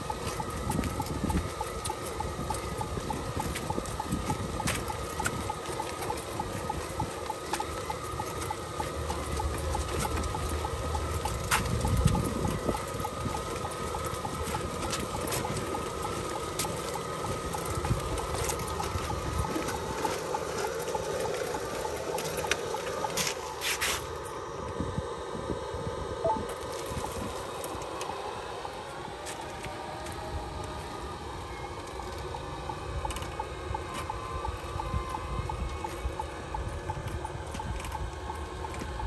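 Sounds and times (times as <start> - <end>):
wheels rolling on ground: 0.0 - 24.5, 26.4 - 28.3.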